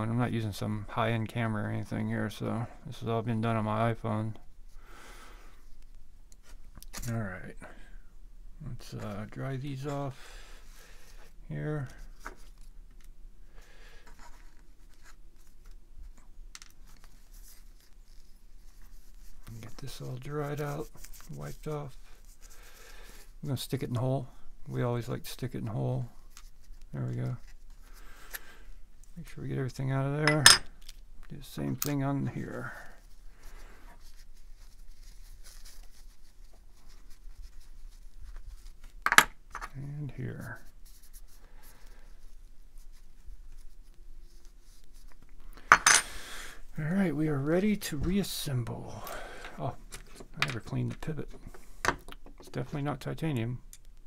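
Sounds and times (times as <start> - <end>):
cloth rubbing and rustling: 14.1 - 23.6, 31.6 - 39.1, 39.8 - 45.3.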